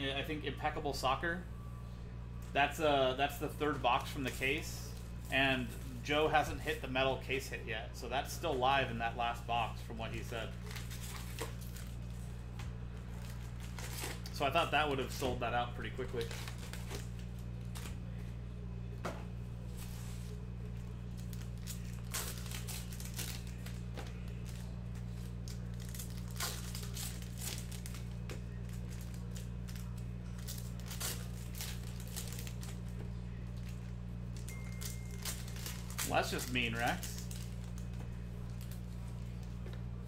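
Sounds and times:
low hum: 0.0 - 40.0
card wrappers tearing and crinkling: 10.1 - 12.2, 13.0 - 18.0, 21.0 - 39.6.

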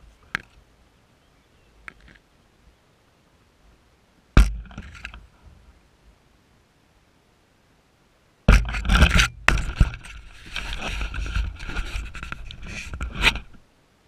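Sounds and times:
leaves and branches scraping camera: 1.8 - 2.3, 4.6 - 5.3, 8.6 - 13.6.

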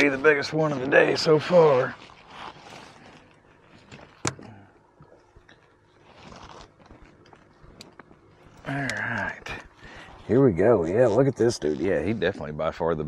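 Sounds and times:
hands scraping against kayak: 6.0 - 7.5.

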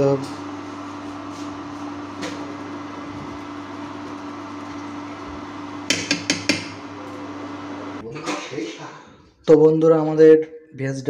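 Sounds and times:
induction cooktop fan hum: 0.0 - 9.6
pan simmering: 0.4 - 8.0.

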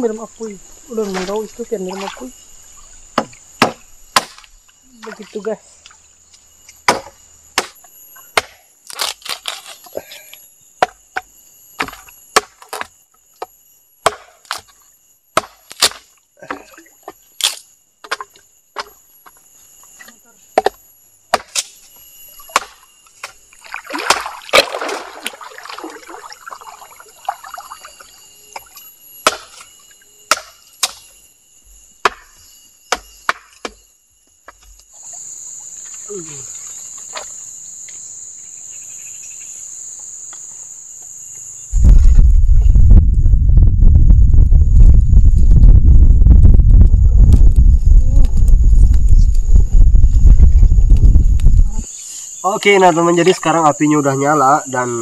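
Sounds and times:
insects shrilling: 0.0 - 42.7, 46.8 - 55.0
machete chopping firewood: 3.2 - 4.5, 6.8 - 10.0, 10.8 - 14.7, 15.4 - 19.0, 20.5 - 21.8, 22.4 - 25.0, 29.2 - 31.1, 32.0 - 33.8.

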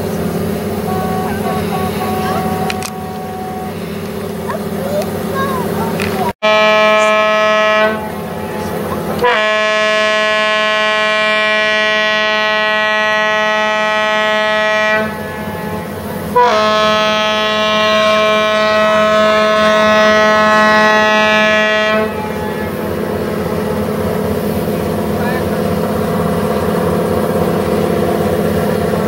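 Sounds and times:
boat horn blasts: 0.8 - 3.8, 6.4 - 23.1.

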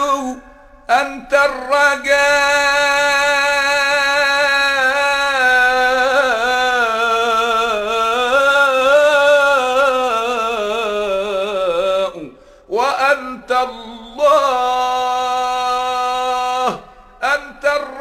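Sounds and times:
solo voice singing devotional song: 0.0 - 18.0.

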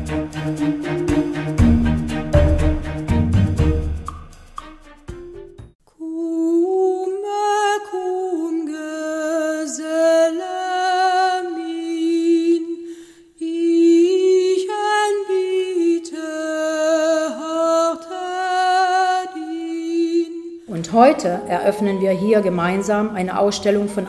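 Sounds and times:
woman singing unaccompanied: 5.9 - 12.8, 13.4 - 24.0.

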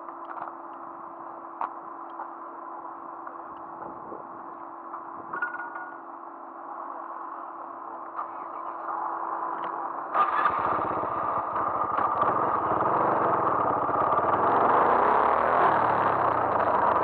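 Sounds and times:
steady hum: 0.0 - 17.0
motorcycle engine starting and running: 10.1 - 17.0.

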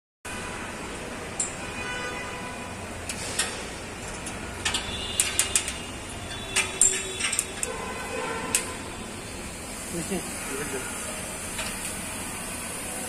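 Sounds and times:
sharp metallic clicks and clinks: 3.1 - 7.7.

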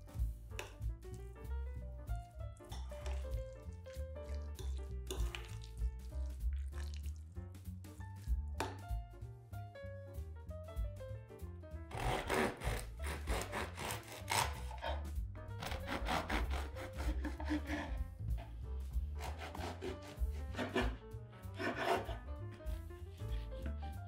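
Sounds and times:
background music: 0.0 - 24.0
knife sawing through bread: 11.9 - 23.7.

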